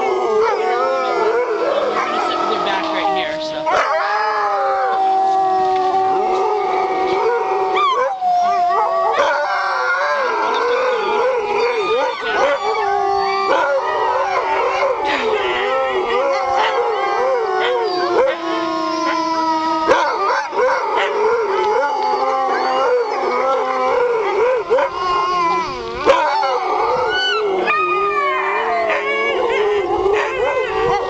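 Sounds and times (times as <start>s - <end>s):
dogs howling in chorus: 0.0s - 31.0s
dogs yipping: 1.7s - 4.0s.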